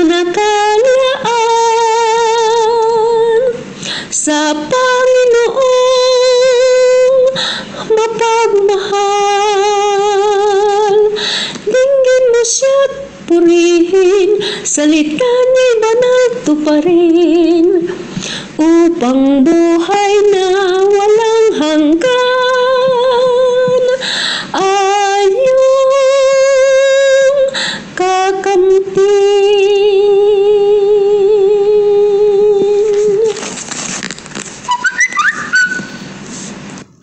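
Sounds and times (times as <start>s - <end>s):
woman singing a hymn: 0.0s - 33.5s
brief high squeak: 34.7s - 36.2s.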